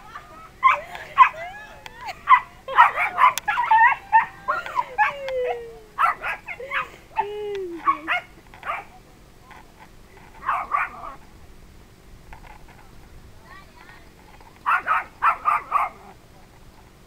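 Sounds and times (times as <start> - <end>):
dogs barking and yelping: 0.0 - 8.9, 10.4 - 11.2, 14.6 - 16.2
dog whining: 0.6 - 8.3.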